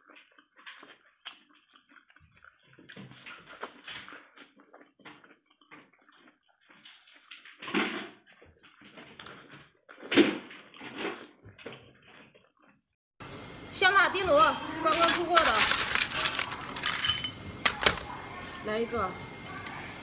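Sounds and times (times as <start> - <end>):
wet slurping and chewing: 0.0 - 12.8.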